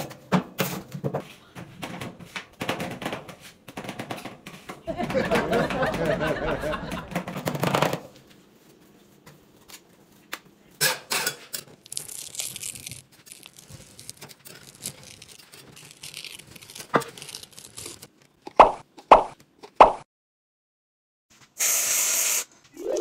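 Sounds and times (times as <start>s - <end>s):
crinkling and rustling: 11.2s - 18.6s
brief high hiss: 21.6s - 22.5s.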